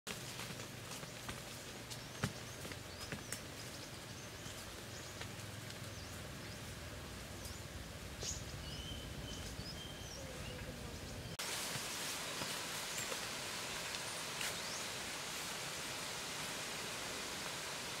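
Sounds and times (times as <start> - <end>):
even hiss: 2.2 - 18.0
bird chirps and calls: 7.4 - 11.4.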